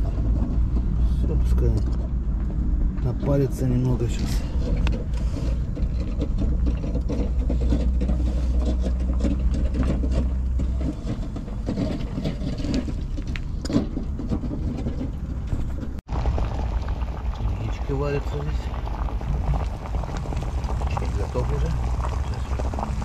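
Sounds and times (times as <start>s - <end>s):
boiling water rumbling: 0.0s - 23.0s
bubbles crackling and popping: 16.0s - 23.0s.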